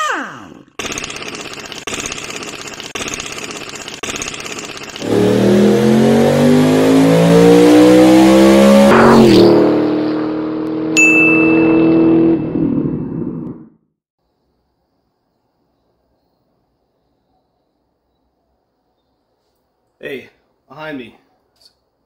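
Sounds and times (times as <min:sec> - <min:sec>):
car engine accelerating hard: 0:05.0 - 0:13.7.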